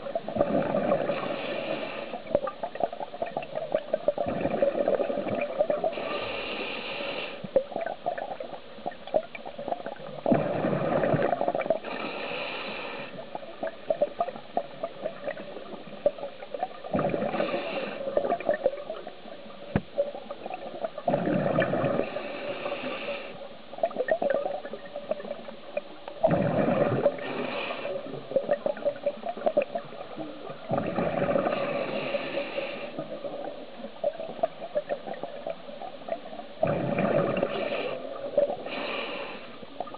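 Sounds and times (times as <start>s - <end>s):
exhaled bubbles gurgling: 0.0s - 39.9s
regulator breathing hiss: 1.1s - 2.3s, 5.9s - 7.5s, 11.8s - 13.2s, 22.0s - 23.5s, 27.2s - 28.2s, 31.5s - 33.0s, 37.4s - 39.6s.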